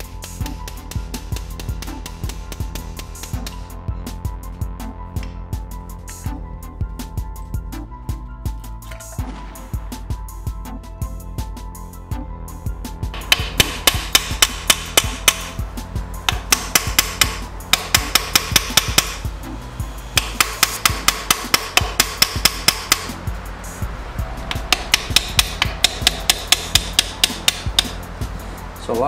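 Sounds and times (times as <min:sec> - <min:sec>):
brass hammer tapping on metal: 0:13.2 - 0:15.5, 0:16.3 - 0:19.2, 0:20.2 - 0:23.1, 0:24.5 - 0:28.0.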